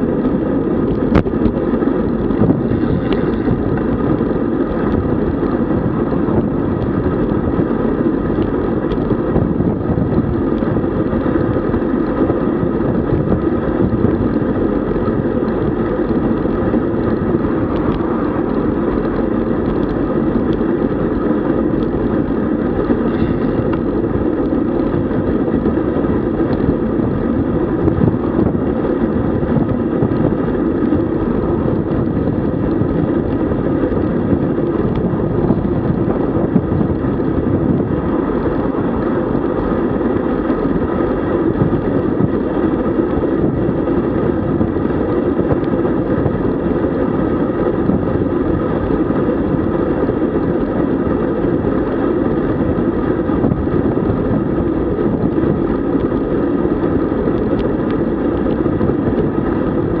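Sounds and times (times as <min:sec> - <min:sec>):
bicycle road noise: 0:00.0 - 1:00.0
wind rushing on microphone: 0:00.0 - 1:00.0.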